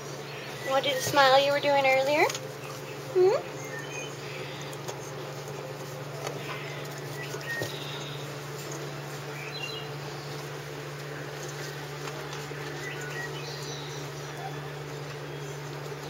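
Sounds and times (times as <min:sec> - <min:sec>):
low hum: 0:00.0 - 0:16.0
puppies scrabbling in wood shavings: 0:00.0 - 0:16.0
puppies squeaking: 0:12.5 - 0:15.3.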